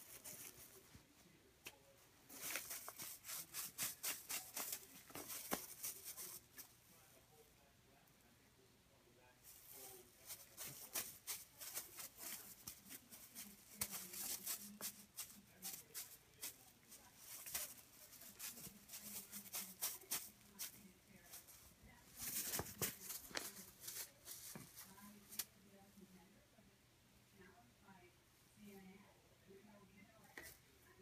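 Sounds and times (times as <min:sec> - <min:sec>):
cat claws scratching fabric toy: 0:00.0 - 0:00.8, 0:02.3 - 0:06.7, 0:09.5 - 0:25.4.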